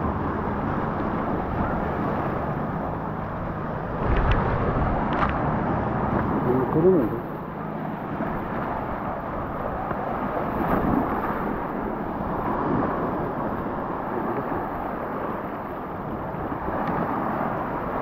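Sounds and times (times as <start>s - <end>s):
small waves washing on beach: 0.0s - 18.0s
wind buffeting microphone: 0.0s - 18.0s.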